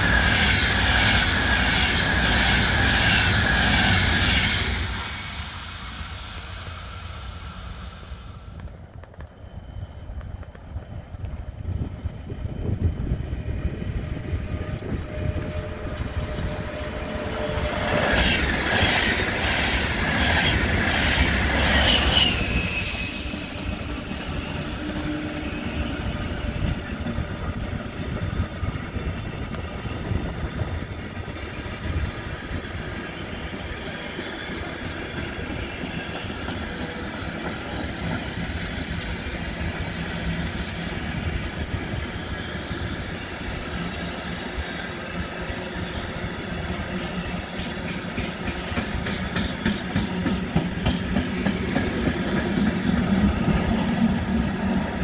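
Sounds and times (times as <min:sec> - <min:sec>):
freight train wheels clattering: 0:12.8 - 0:40.2, 0:45.8 - 0:55.0.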